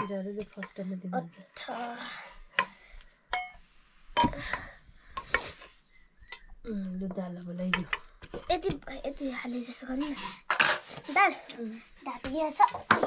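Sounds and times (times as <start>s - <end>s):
dishes and cutlery clinking: 2.0s - 3.6s, 10.2s - 11.1s.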